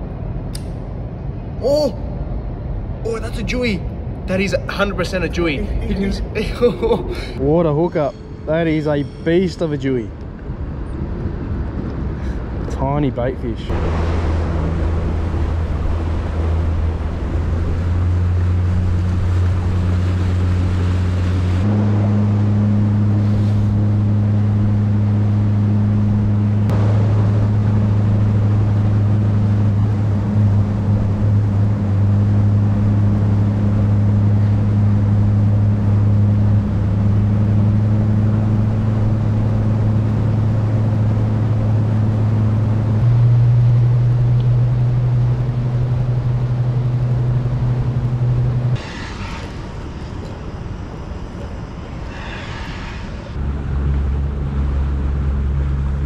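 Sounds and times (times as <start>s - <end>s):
wind: 0.0s - 56.0s
boat motor running: 13.7s - 49.9s
water noise: 13.7s - 56.0s.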